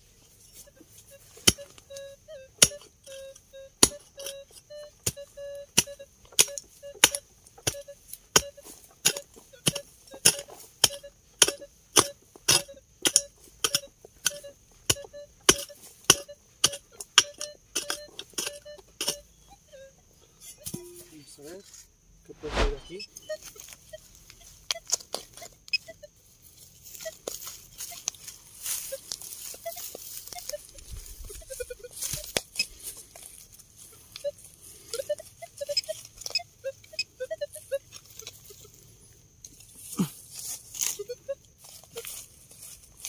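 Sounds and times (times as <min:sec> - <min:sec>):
metal detector beeping: 0:00.4 - 0:20.0, 0:22.4 - 0:26.2, 0:26.9 - 0:32.8, 0:34.0 - 0:38.7, 0:40.9 - 0:42.1
digging tool chopping soil: 0:08.4 - 0:19.2.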